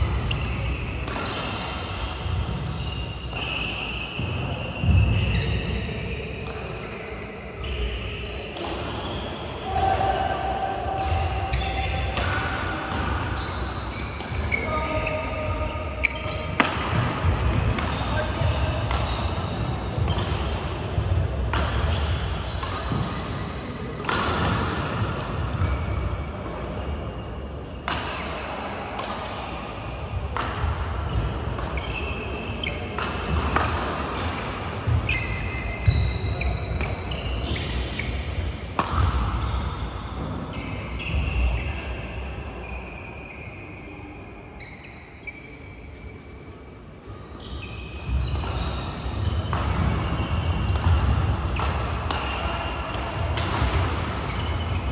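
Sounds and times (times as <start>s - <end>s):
shoe squeaks on court: 0.0s - 9.8s, 11.0s - 20.4s, 21.0s - 24.2s, 24.8s - 26.0s, 31.1s - 46.4s, 47.1s - 54.9s
badminton rackets hitting shuttlecocks: 0.2s - 4.4s, 11.0s - 23.1s, 23.8s - 25.0s, 27.8s - 35.2s, 35.8s - 39.9s, 48.0s - 54.8s.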